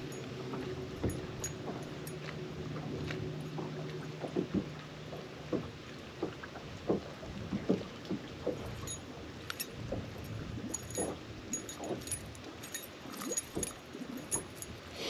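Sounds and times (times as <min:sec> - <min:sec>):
metallic jingling and clicking: 0:00.0 - 0:03.2, 0:08.6 - 0:14.9
water slapping boat hull: 0:00.0 - 0:15.0.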